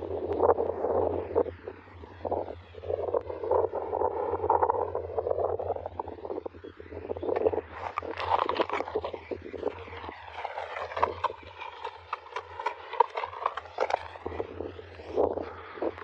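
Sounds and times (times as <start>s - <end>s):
fish dragged through grass: 7.6s - 14.6s.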